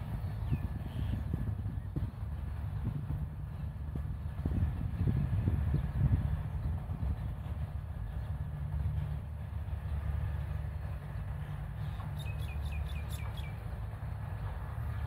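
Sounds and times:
low outdoor rumble: 0.0s - 15.0s
bird chirping: 11.8s - 13.6s.

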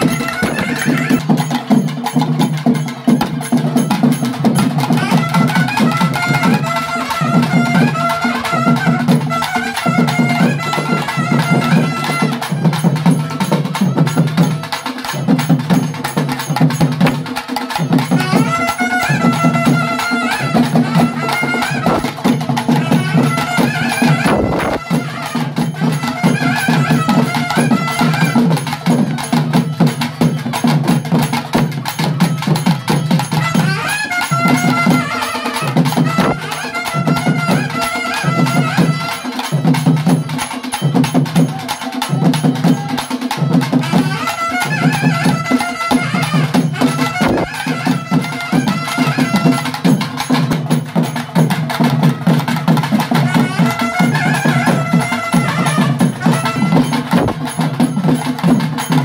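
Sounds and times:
double-reed pipe melody: 0.0s - 1.3s, 4.9s - 12.5s, 18.1s - 28.7s, 33.2s - 39.4s, 43.6s - 49.8s, 53.1s - 57.4s
drums beaten with sticks: 0.0s - 59.0s.

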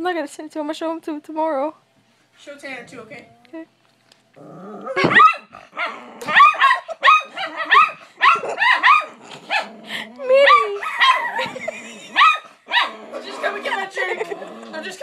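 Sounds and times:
dog barking rapidly: 5.0s - 9.7s, 10.5s - 11.4s, 12.2s - 13.0s.

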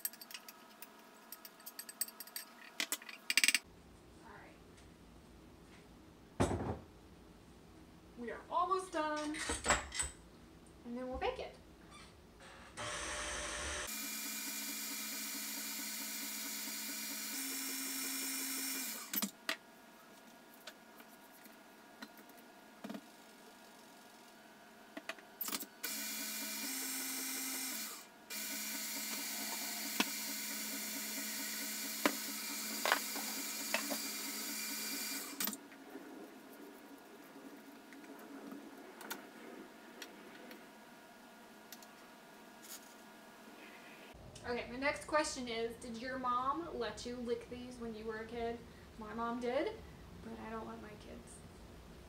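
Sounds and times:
stand mixer motor whirring: 25.9s - 35.4s.

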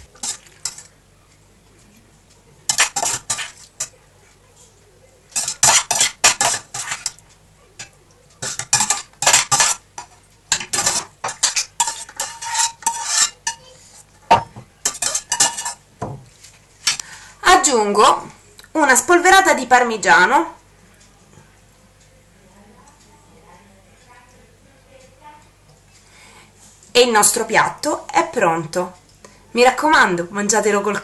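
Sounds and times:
metal spoons scraping a steel bowl: 2.7s - 4.0s, 5.3s - 7.2s, 7.8s - 14.1s, 14.8s - 15.8s.

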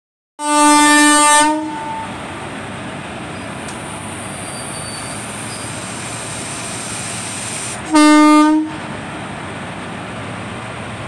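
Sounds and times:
locomotive horn blast: 0.4s - 2.2s, 7.8s - 8.9s
locomotive steady noise: 1.7s - 11.0s.

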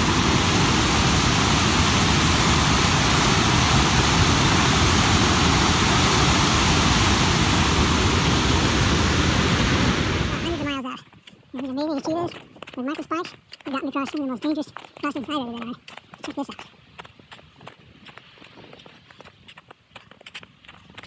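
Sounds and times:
mountain torrent rushing over rock: 0.0s - 10.9s.

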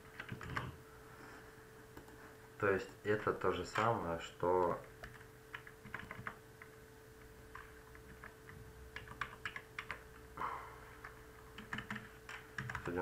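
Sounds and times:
faint steady hum: 0.0s - 13.0s
keyboard keys clicking: 0.1s - 0.7s, 4.6s - 6.7s, 7.5s - 10.0s, 11.0s - 13.0s.

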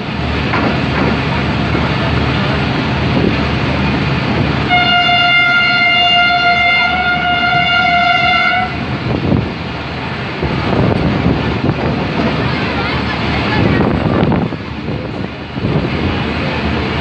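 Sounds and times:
train rumbling: 0.0s - 17.0s
locomotive horn: 4.6s - 8.9s.

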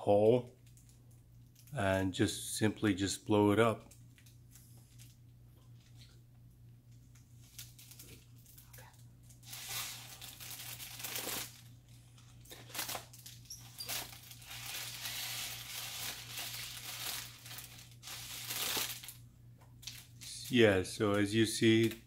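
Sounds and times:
foil balloon crinkling: 7.0s - 19.2s.

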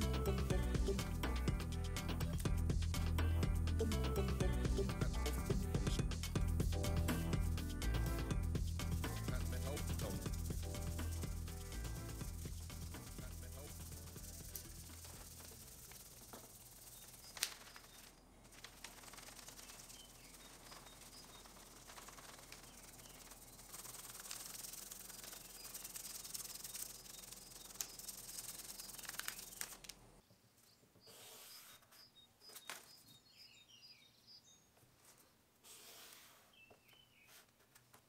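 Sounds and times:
hand rubbing over paper: 8.9s - 29.9s, 35.1s - 36.6s.

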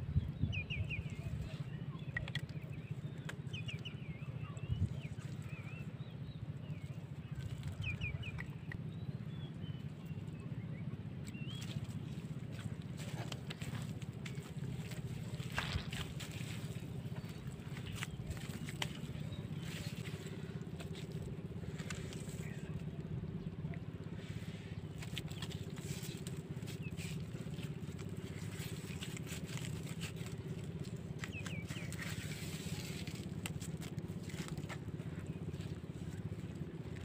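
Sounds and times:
low engine drone: 0.0s - 37.0s
hands squelching in mud: 11.2s - 22.9s, 24.0s - 37.0s.

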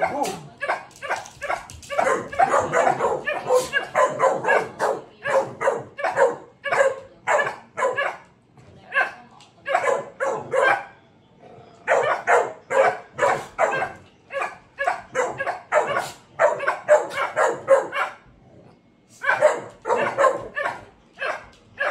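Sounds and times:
dogs barking sharply: 0.0s - 8.2s, 14.8s - 18.2s, 19.2s - 21.9s.

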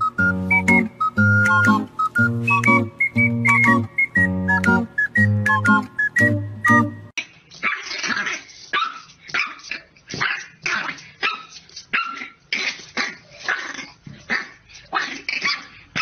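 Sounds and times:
puppy barking: 7.6s - 12.4s.

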